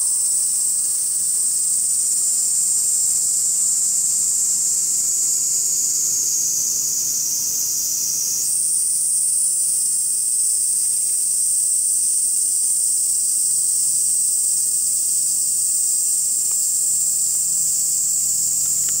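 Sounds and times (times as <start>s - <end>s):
cicadas chorus: 0.0s - 19.0s.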